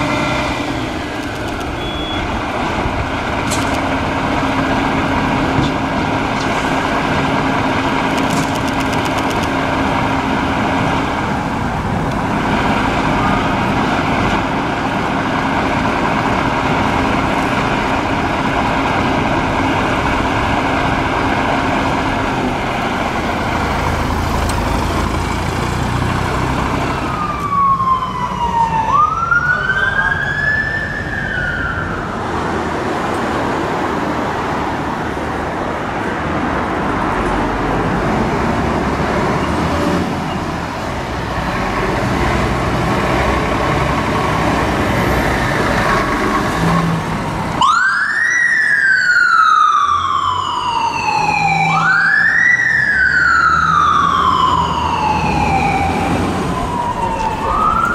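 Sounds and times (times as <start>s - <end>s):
diesel engines running: 0.0s - 57.9s
siren wailing: 26.8s - 32.4s, 47.6s - 57.9s.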